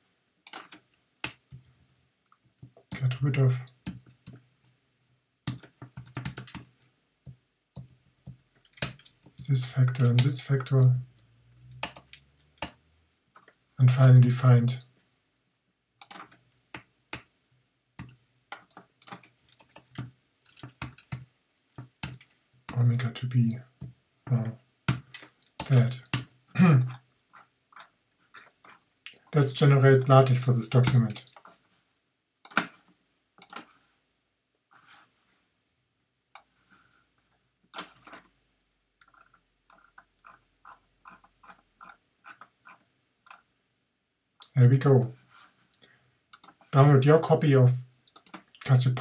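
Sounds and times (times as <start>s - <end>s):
keyboard typing: 5.5s - 6.7s, 11.6s - 12.8s, 18.0s - 22.4s, 48.1s - 48.6s
mouse scroll wheel ticks: 39.0s - 43.4s, 46.4s - 46.6s.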